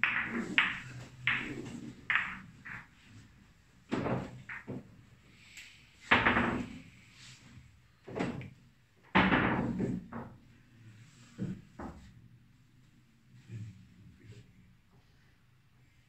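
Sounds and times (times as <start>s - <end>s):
billiard balls knocking: 0.0s - 3.0s, 3.9s - 4.9s, 6.1s - 6.8s.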